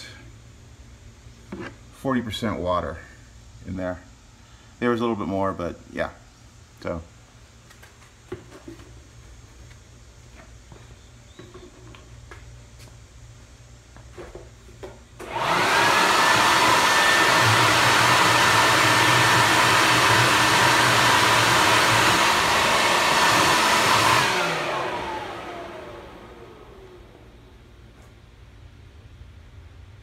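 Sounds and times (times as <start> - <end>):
motor spinning down: 15.2 - 27.3
leaf blower running: 15.2 - 27.4.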